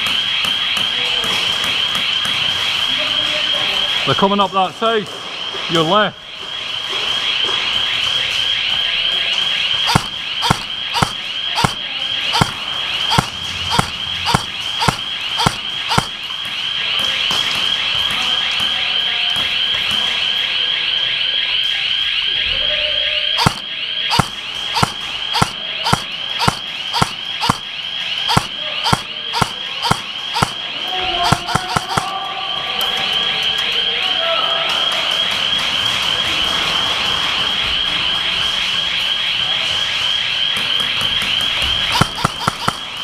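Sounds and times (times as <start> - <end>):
airsoft gun shots: 9.9 - 16.2, 23.4 - 27.7, 28.3 - 30.6, 31.2 - 32.2, 41.9 - 43.0.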